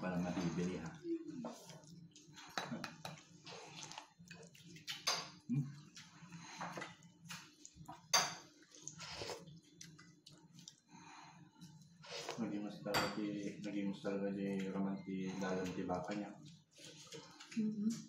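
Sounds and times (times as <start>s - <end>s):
spoons clinking on ceramic bowls: 8.1s - 8.5s.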